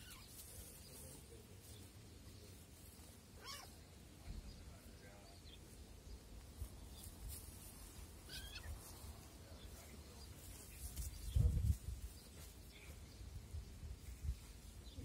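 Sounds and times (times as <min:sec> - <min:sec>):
kitten squeaks: 0:08.3 - 0:08.8.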